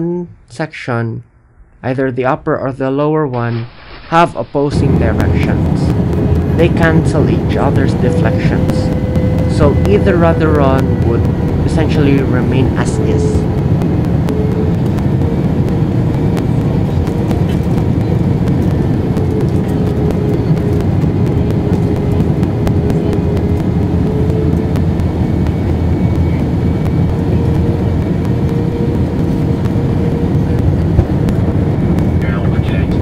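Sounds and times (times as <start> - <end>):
low hum: 0.0 - 33.0
airliner engine and airflow rush: 3.3 - 33.0.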